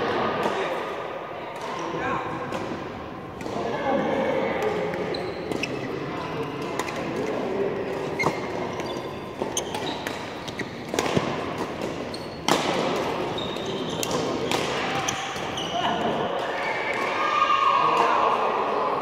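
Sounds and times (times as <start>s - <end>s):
rackets hitting shuttlecock: 4.6s - 17.2s
shoes squeaking on court: 4.7s - 16.8s.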